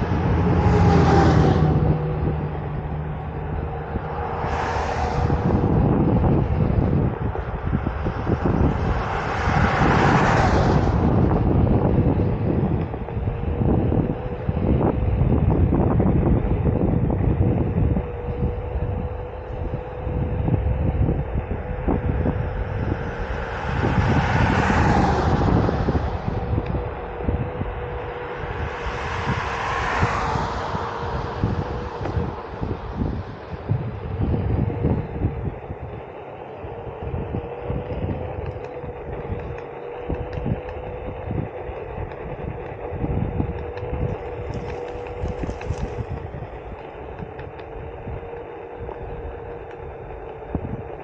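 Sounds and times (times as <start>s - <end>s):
rushing noise: 0.0s - 12.7s, 21.9s - 35.4s
electric motor whine: 0.0s - 51.0s
wind buffeting microphone: 0.0s - 51.0s.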